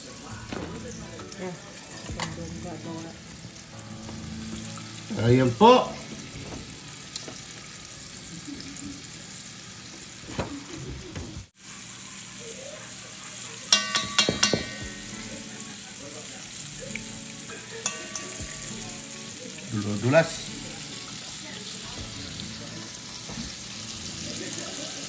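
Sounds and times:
food sizzling in a hot pan: 0.0 - 25.0
utensil clinking against pan: 13.7 - 15.7, 17.4 - 19.4.

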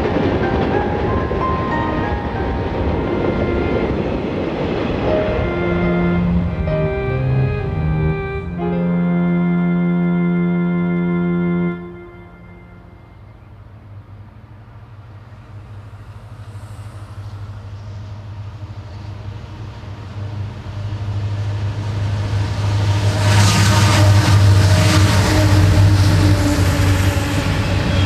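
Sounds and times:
diesel locomotive engine drone: 0.0 - 28.0
train rumble and rail noise: 0.0 - 28.0
held musical chord: 0.3 - 13.5.

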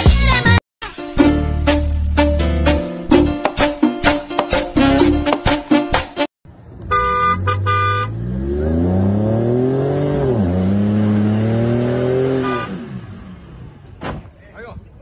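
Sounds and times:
latin music: 0.0 - 6.3
vehicle engine revving: 6.7 - 14.0
car horn honking: 6.8 - 8.3, 11.9 - 13.2.

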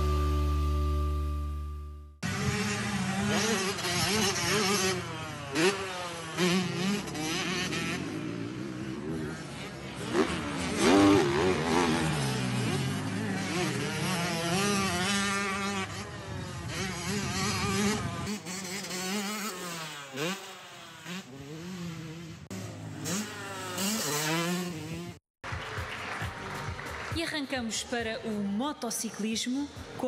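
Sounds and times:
motocross engines revving: 2.2 - 25.2.

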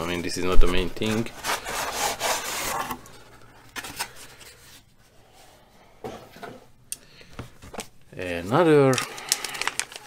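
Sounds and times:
paper rustling: 8.9 - 10.0.

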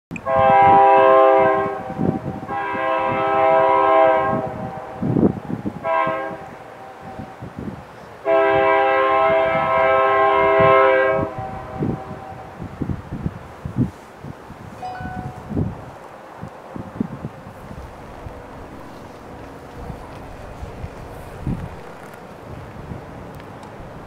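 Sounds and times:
locomotive air horn blasts: 0.2 - 7.5, 8.2 - 12.7
locomotive engines rumbling: 14.6 - 24.0.

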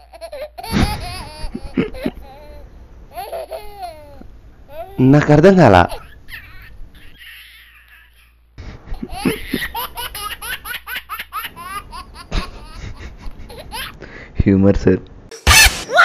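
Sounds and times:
faint room hum: 0.0 - 16.0
man giggling: 0.6 - 2.4, 8.6 - 9.9, 12.0 - 13.9.

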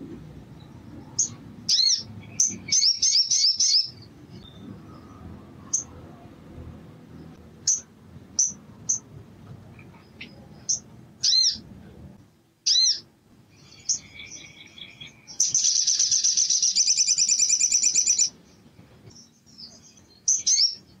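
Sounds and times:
sunbird singing: 0.0 - 6.0, 7.6 - 9.1, 9.9 - 11.6, 12.6 - 21.0.

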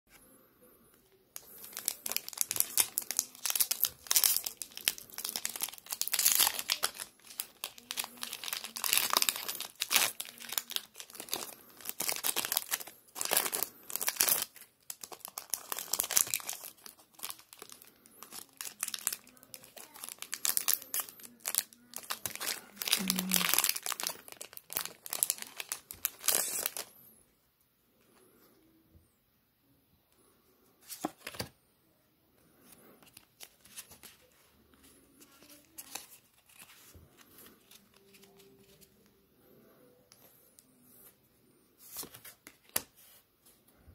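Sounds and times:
foil wrapper crinkling: 1.4 - 26.9.

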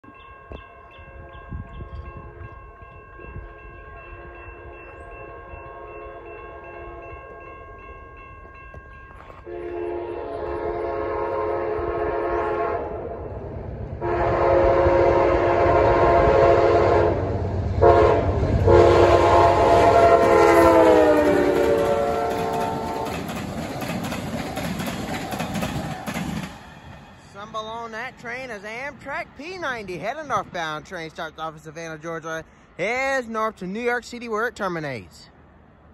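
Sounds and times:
crossing bell ringing: 0.0 - 12.6
locomotive horn blasts: 9.4 - 13.2, 14.0 - 23.2
train wheels clattering over rails: 19.6 - 27.2.

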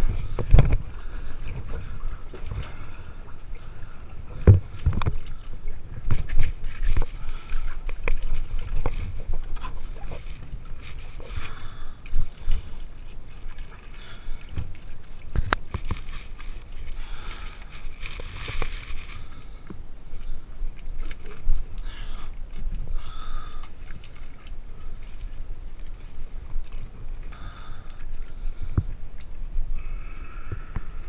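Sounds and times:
knocks and thumps against hull: 0.0 - 0.9, 4.4 - 5.3
water sloshing and splashing: 0.0 - 29.7.

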